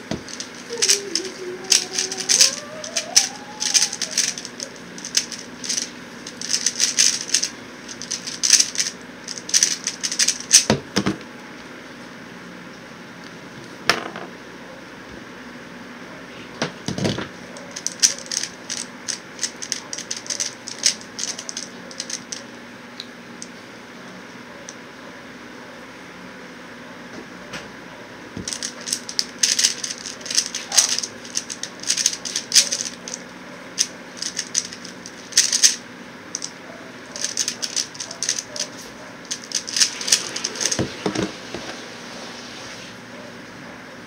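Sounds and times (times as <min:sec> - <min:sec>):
puzzle cube clicking and rattling: 0:00.0 - 0:10.9, 0:17.6 - 0:22.5, 0:28.4 - 0:41.3
desk fan humming: 0:00.0 - 0:44.0.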